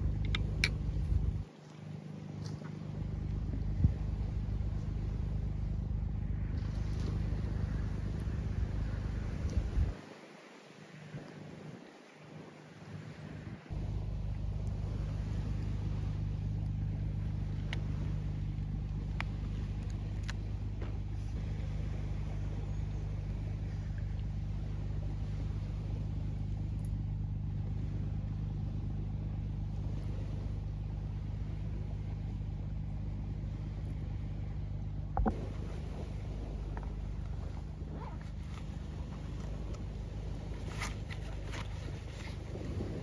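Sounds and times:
low motor rumble: 0.0 - 43.0
faint clicks: 0.2 - 1.8.

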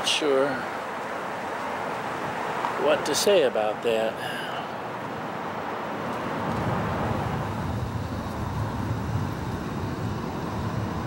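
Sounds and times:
road traffic hiss: 0.0 - 11.0
low rumble: 6.4 - 11.0.

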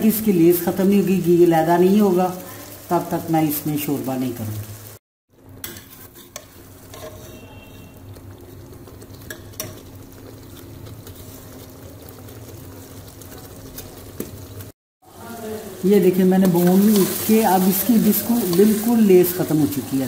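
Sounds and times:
low sizzle of frying: 0.0 - 20.0
metal ladle scraping pot: 5.6 - 7.9.

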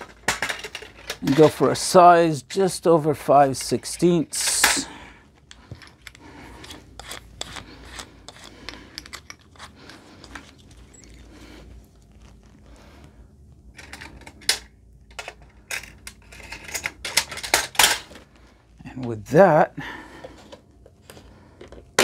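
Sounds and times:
loose drill bits clinking: 5.5 - 11.4.

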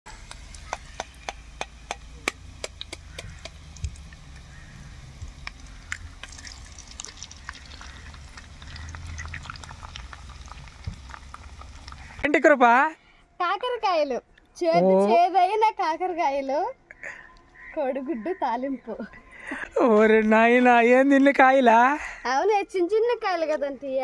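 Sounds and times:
hot oil sizzling: 0.1 - 12.2
low steady hum: 0.1 - 20.8
eggs tapped and cracked: 0.2 - 4.4, 5.2 - 12.1.

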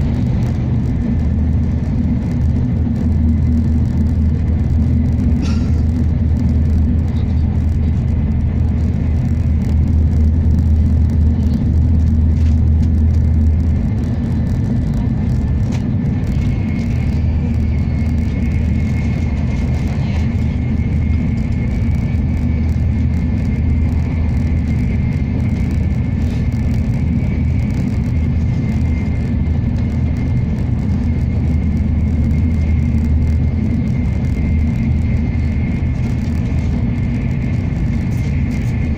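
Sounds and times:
train rumble inside cabin: 0.0 - 38.9.

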